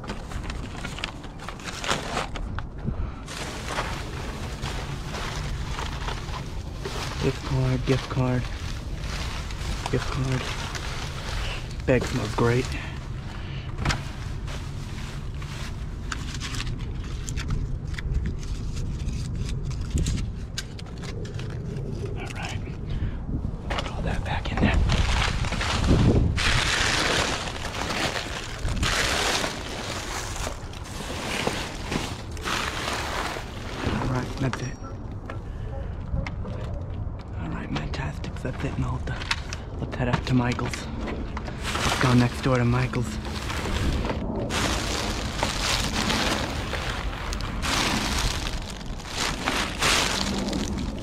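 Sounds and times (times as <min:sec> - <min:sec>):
plastic bags crinkling: 0:00.0 - 0:17.4, 0:24.8 - 0:34.7, 0:41.5 - 0:51.0.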